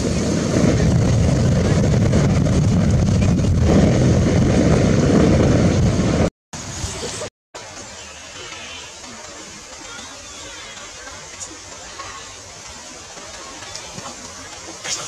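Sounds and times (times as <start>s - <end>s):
wind buffeting microphone: 0.0s - 7.3s.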